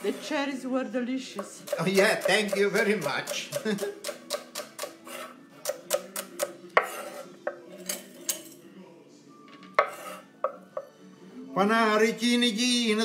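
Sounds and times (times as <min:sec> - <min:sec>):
knife chopping on wooden board: 0:01.6 - 0:07.2.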